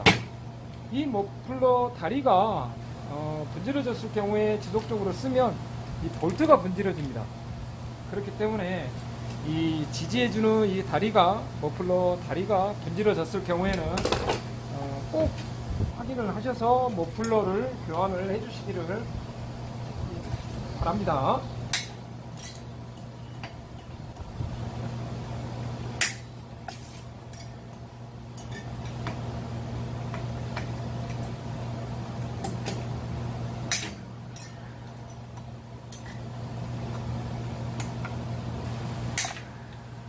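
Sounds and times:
steady low hum: 0:00.0 - 0:40.0
metal tools clinking: 0:21.8 - 0:23.9, 0:35.9 - 0:36.2.

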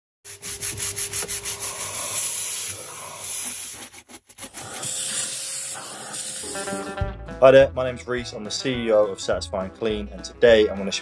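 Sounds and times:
stiff brush scrubbing: 0:00.3 - 0:06.9.

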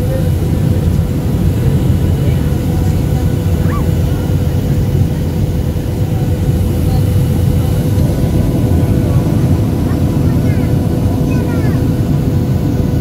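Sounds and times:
airplane cabin rumble: 0:00.0 - 0:13.0
steady hum: 0:00.0 - 0:13.0.

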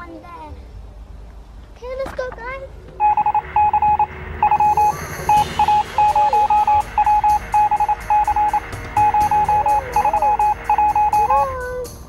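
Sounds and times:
electronic music: 0:03.0 - 0:12.0.

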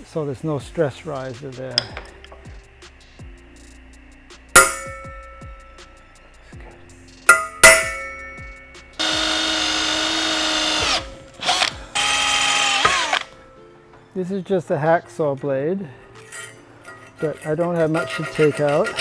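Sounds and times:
metal tapping on metal: 0:01.8 - 0:02.5, 0:04.6 - 0:05.9, 0:07.3 - 0:08.9
cordless drill boring into steel: 0:09.0 - 0:13.3.

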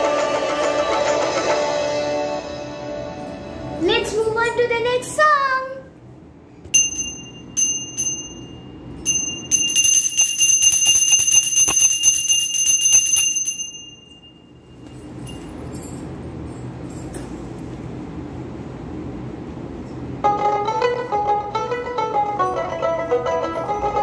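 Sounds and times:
small hand bell ringing: 0:06.7 - 0:17.4.

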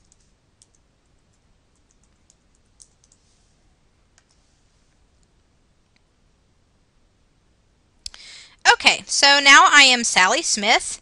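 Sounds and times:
keyboard and mouse clicks: 0:00.0 - 0:03.2.

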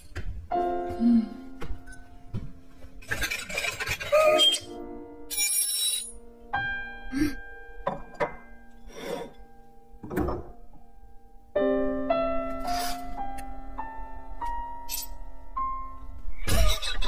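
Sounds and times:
gentle orchestral music: 0:00.4 - 0:16.5.

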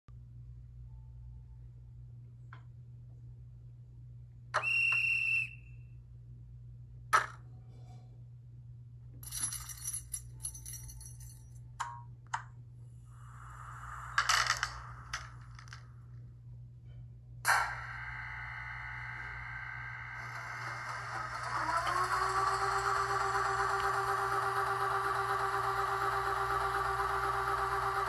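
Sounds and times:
steady low hum: 0:00.1 - 0:28.0
clicks and clinks: 0:09.2 - 0:11.6.

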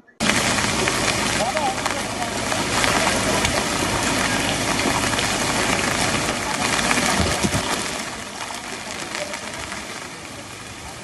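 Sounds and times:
rain falling on water: 0:00.2 - 0:11.0.

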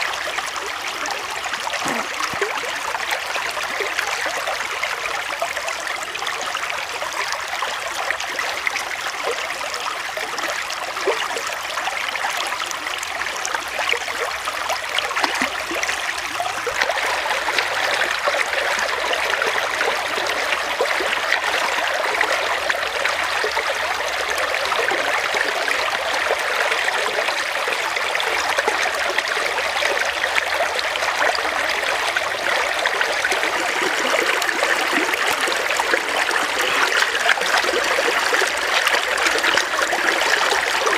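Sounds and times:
stream water over rocks: 0:00.0 - 0:40.9.

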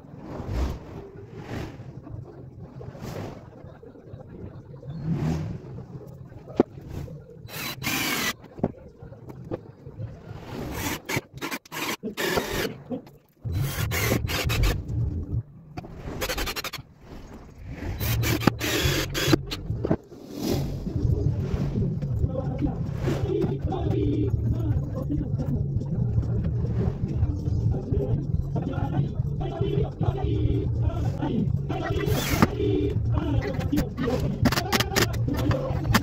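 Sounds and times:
low rumble: 0:13.4 - 0:16.2, 0:16.9 - 0:34.5
scraping and rubbing: 0:15.8 - 0:20.8.

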